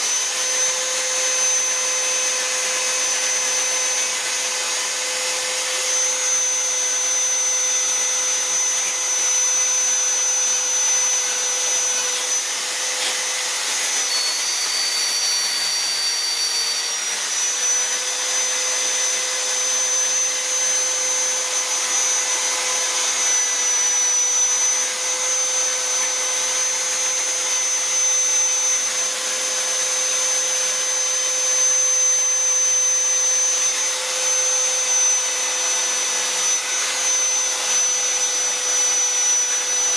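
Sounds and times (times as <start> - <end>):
die grinder whining on wood: 0.0 - 39.9.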